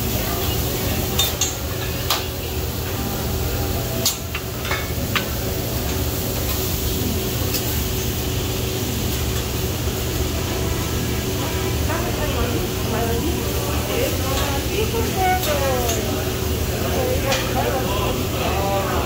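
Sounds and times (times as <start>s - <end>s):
food sizzling on a griddle: 0.0s - 19.0s.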